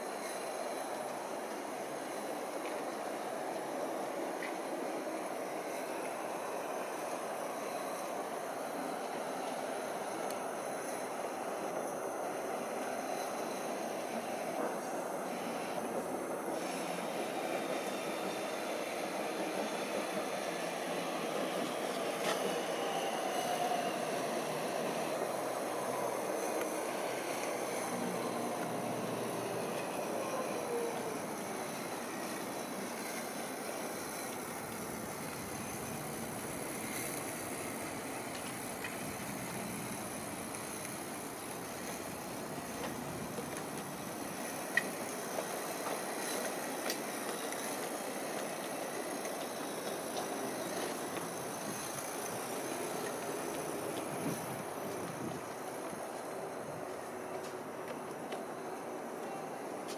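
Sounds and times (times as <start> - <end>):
distant aircraft drone: 0.0 - 59.7
faint rail noise: 0.0 - 59.9
steam engine hissing: 0.0 - 59.9.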